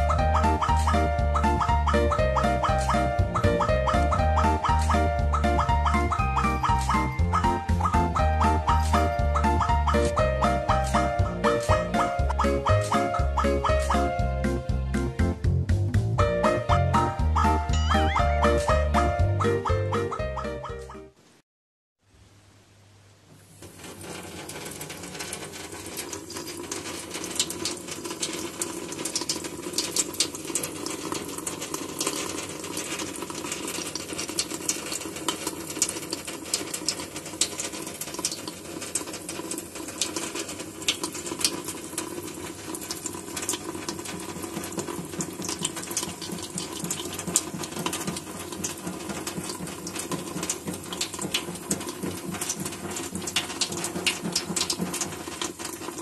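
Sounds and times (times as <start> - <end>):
tap water running into steel sink: 23.4 - 56.0
cat lapping water: 34.4 - 56.0.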